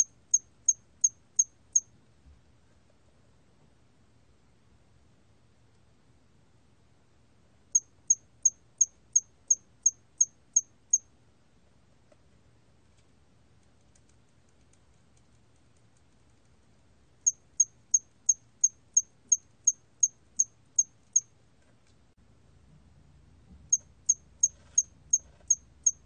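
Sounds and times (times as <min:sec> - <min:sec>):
cricket chirping: 0:00.0 - 0:01.9, 0:07.7 - 0:11.1, 0:17.2 - 0:21.3, 0:23.7 - 0:26.0.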